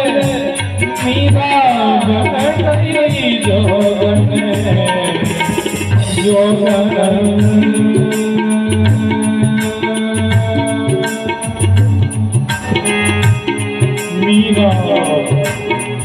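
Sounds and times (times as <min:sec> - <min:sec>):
keyboard melody with gliding notes: 0:00.0 - 0:16.0
low thumping beat: 0:00.0 - 0:16.0
tabla: 0:00.0 - 0:16.0.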